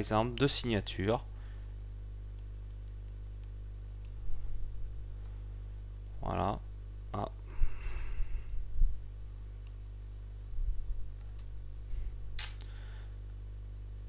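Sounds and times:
steady low hum: 0.0s - 14.0s
keyboard keystrokes: 11.2s - 11.5s.

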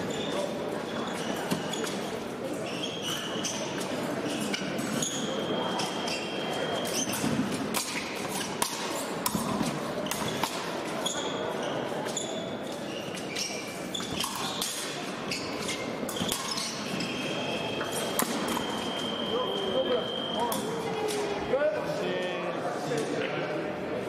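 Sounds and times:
shoes squeaking: 0.0s - 20.8s
murmur of large hall: 0.0s - 24.0s.

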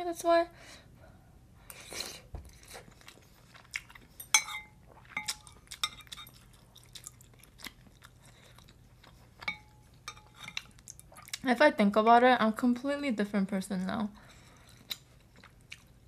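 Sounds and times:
chewing and mouth sounds: 1.7s - 11.5s, 14.4s - 16.0s
metal spoon clinking ceramic pot: 4.2s - 6.3s, 9.4s - 10.6s.

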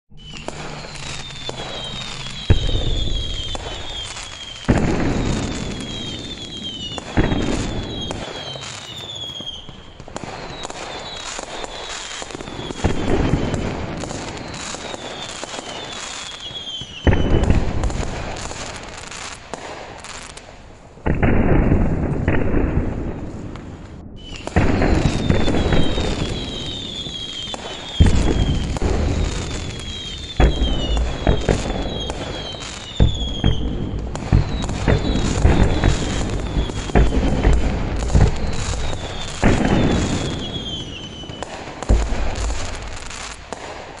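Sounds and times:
high falling whistles: 0.1s - 13.6s, 14.2s - 17.3s, 24.2s - 37.3s, 38.0s - 43.4s
fireworks bangs: 0.1s - 44.0s
fireworks crackling: 0.1s - 44.0s.

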